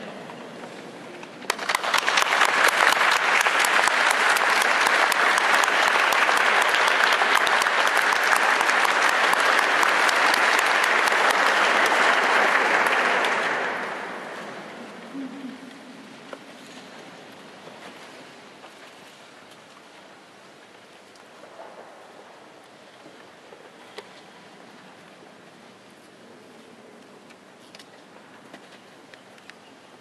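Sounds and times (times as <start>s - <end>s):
audience applauding: 1.5s - 16.4s.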